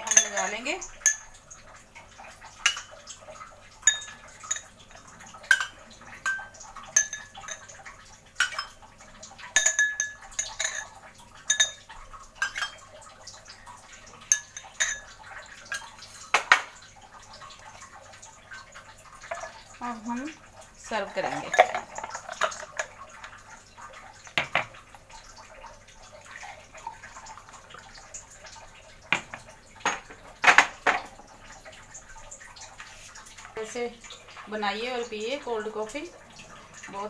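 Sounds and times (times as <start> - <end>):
spoon clinking against glass: 0.0 - 1.4, 3.8 - 4.7, 5.5 - 7.8, 8.4 - 8.8, 9.6 - 12.8, 14.3 - 15.1.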